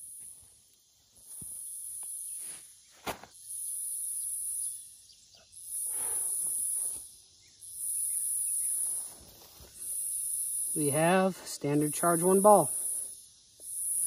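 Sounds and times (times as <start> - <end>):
insects buzzing: 0.0 - 14.0
handling noise in grass: 1.2 - 3.4, 8.6 - 10.0
footsteps in grass: 8.7 - 10.0.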